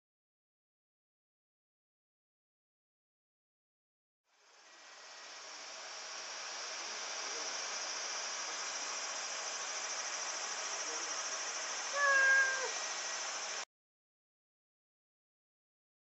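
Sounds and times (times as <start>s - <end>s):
steady high hiss: 4.4s - 13.6s
cat meowing: 11.9s - 12.8s.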